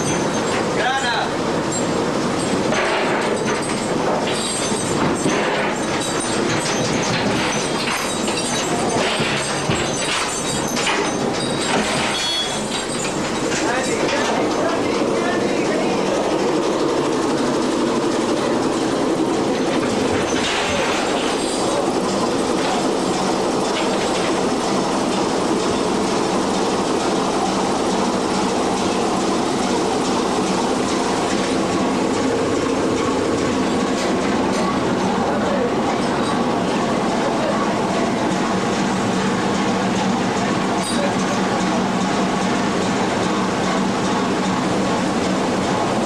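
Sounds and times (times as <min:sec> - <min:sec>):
boat engine running: 0:00.0 - 0:46.0.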